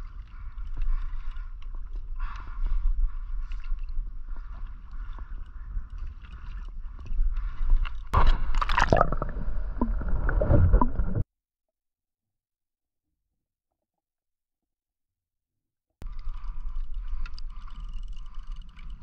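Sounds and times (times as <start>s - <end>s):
water sloshing against kayak hull: 6.0s - 11.2s.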